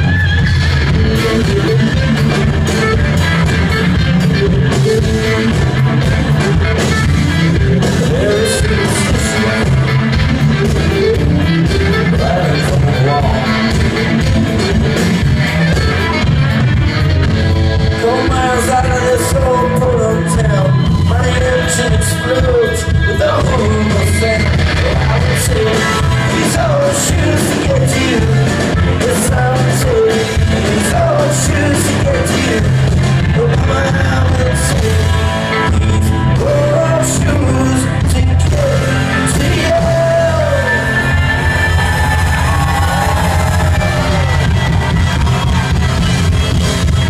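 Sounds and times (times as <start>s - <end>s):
drums: 0.0s - 47.0s
electric guitars: 0.0s - 47.0s
keyboard: 0.0s - 47.0s.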